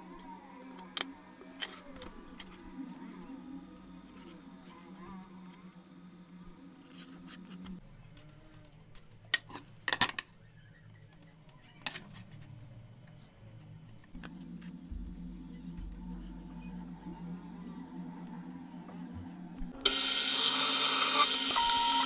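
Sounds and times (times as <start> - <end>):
steady low hum: 0.0 - 8.2, 12.3 - 20.5.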